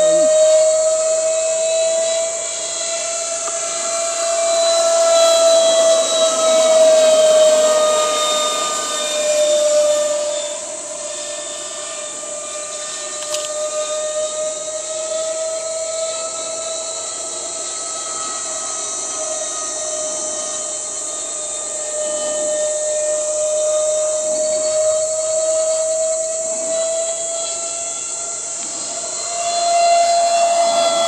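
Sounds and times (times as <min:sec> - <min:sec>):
model jet engine whine: 0:00.0 - 0:31.0.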